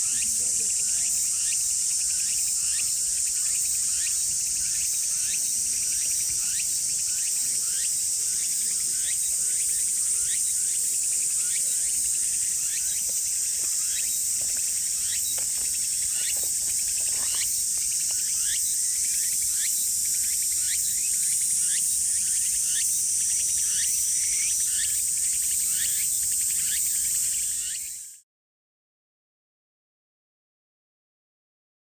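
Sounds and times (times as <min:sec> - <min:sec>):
insects droning: 0:00.0 - 0:28.2.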